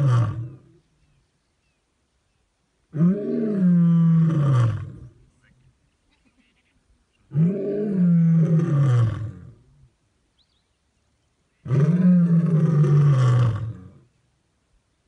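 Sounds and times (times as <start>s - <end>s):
lion roaring: 2.9s - 5.1s, 7.3s - 9.6s, 11.6s - 14.0s.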